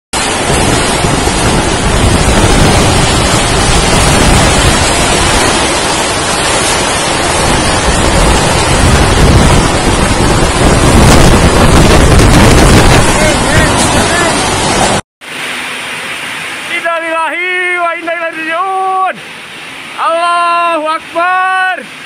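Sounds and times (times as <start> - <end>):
strong wind buffeting microphone: 0.2 - 15.0.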